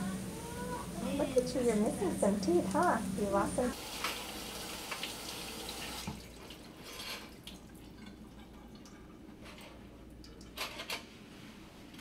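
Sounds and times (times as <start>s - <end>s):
water dripping in a steel sink: 7.3s - 9.2s, 10.1s - 10.6s.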